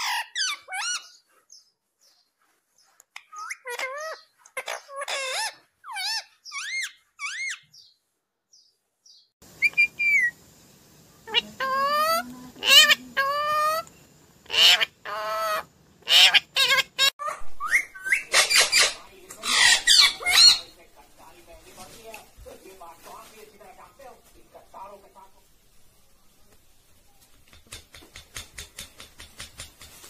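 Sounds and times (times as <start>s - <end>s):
parakeet chirps and squawks: 0.0s - 1.6s, 3.2s - 7.9s, 9.6s - 10.4s, 11.3s - 13.9s, 14.5s - 20.7s.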